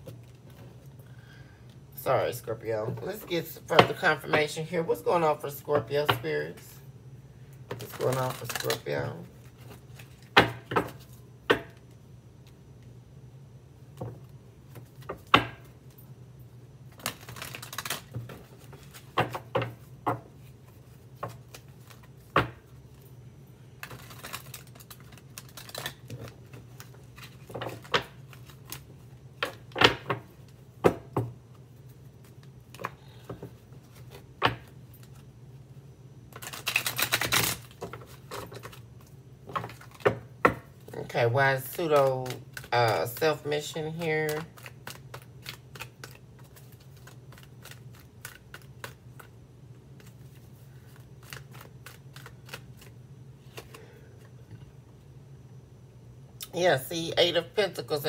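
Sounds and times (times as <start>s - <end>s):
card deck shuffling rattle: 44.2s - 49.3s, 50.0s - 53.8s.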